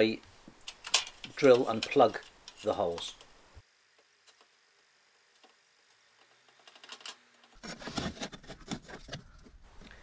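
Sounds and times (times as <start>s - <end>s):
steel rule clicking and scraping: 0.6s - 3.3s.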